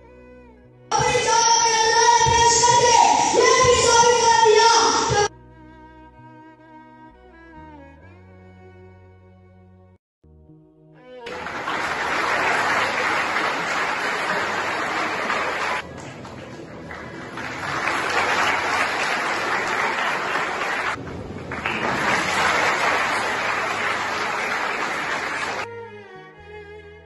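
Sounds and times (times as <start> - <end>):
audience applauding: 11.2 - 25.7.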